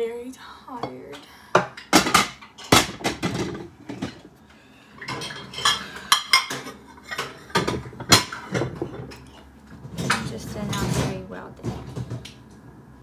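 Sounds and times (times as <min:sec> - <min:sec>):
dishes and cutlery clattering: 0:00.8 - 0:04.3, 0:05.0 - 0:12.2.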